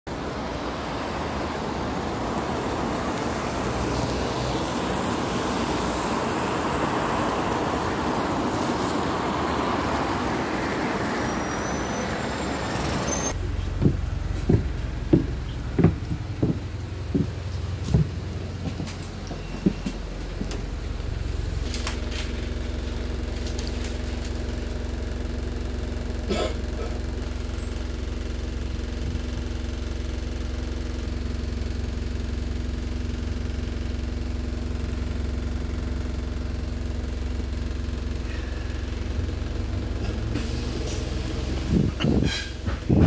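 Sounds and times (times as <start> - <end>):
bus diesel engine humming: 0.1 - 43.0
knocks and rattles: 13.4 - 20.7.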